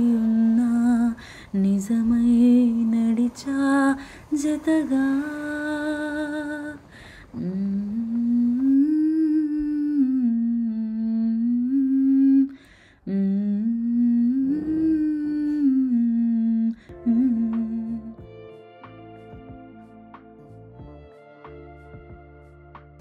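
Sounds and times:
person humming a slow melody: 0:00.0 - 0:19.8
instrumental music: 0:16.9 - 0:23.0.

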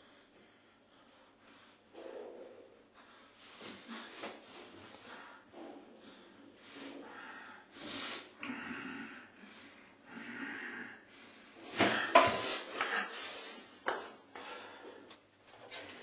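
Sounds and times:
man breathing noisily: 0:00.0 - 0:15.2.

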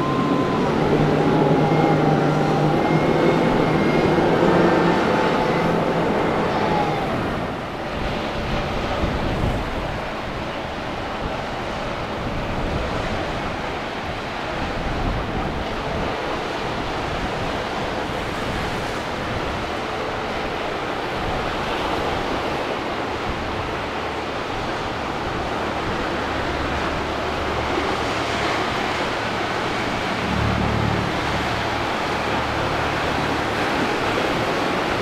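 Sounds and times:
ocean surf: 0:00.0 - 0:35.0
wind buffeting microphone: 0:00.0 - 0:35.0
faint engine drone: 0:14.3 - 0:35.0.

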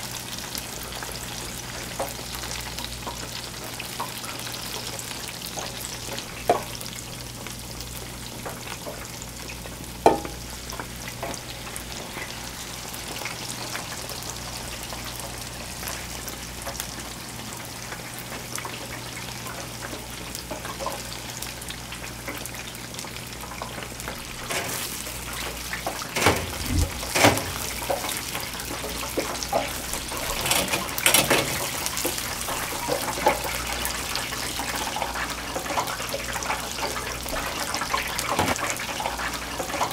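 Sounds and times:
deep-frying oil sizzling: 0:00.0 - 0:39.9.

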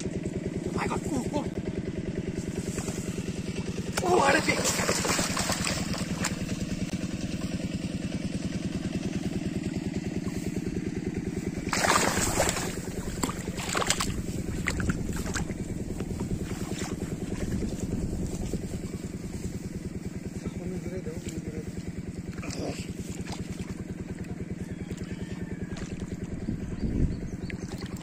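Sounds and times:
small engine running: 0:00.0 - 0:28.0
fish splashing in water: 0:03.6 - 0:07.5, 0:09.6 - 0:17.6, 0:22.2 - 0:24.0, 0:24.8 - 0:26.3, 0:27.5 - 0:28.0.

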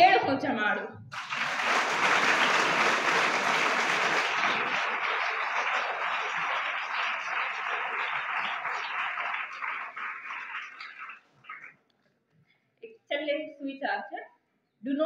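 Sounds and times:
audience applauding: 0:01.1 - 0:11.7.

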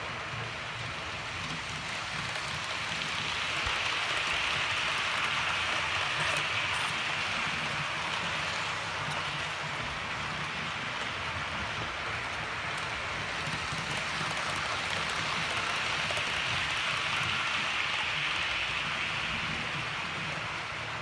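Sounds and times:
model train wheels hissing on rail: 0:00.0 - 0:21.0.

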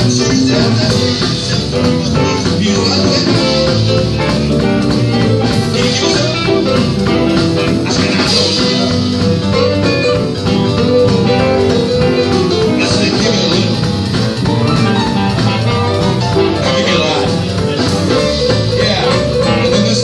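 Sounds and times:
electric guitar: 0:00.0 - 0:20.0
live blues band playing: 0:00.0 - 0:20.0.

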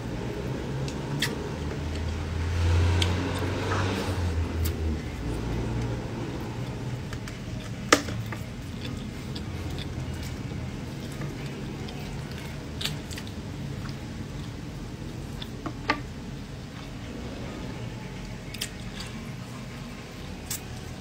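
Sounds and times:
steady low hum: 0:00.0 - 0:21.0
mouth chewing: 0:07.5 - 0:15.6.

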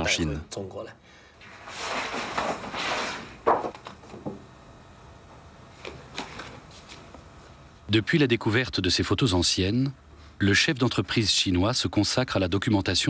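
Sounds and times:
paper rustling: 0:01.4 - 0:04.4.

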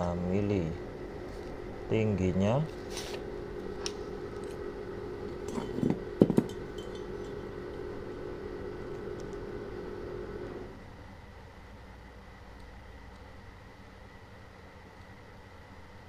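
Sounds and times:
steady low hum: 0:00.0 - 0:16.0
metal tools clinking: 0:05.5 - 0:07.5.

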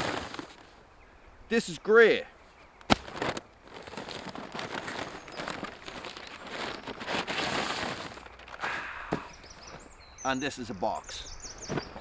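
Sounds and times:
packaging rustling and crinkling: 0:02.9 - 0:09.9.

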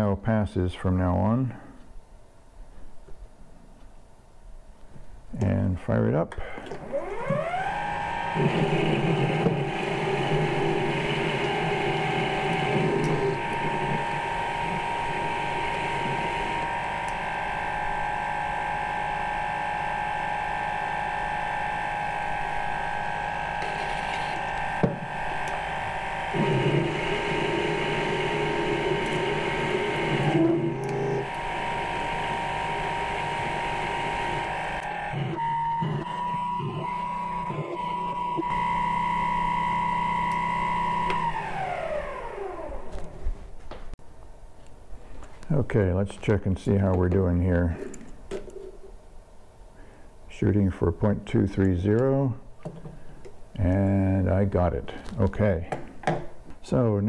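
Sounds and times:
lathe motor whine: 0:06.6 - 0:43.2.

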